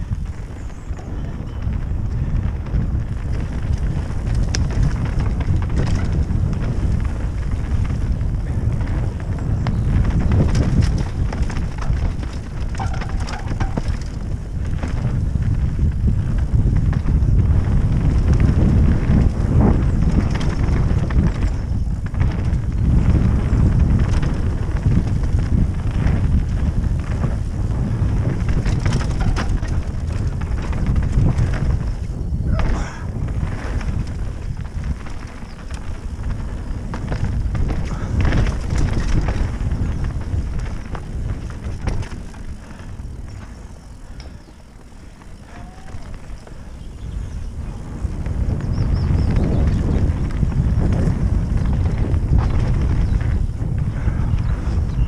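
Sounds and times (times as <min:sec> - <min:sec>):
bike clicks and rattles: 0:00.0 - 0:55.0
tyres rumbling on dirt: 0:00.0 - 0:55.0
wind buffeting microphone: 0:00.0 - 0:55.0.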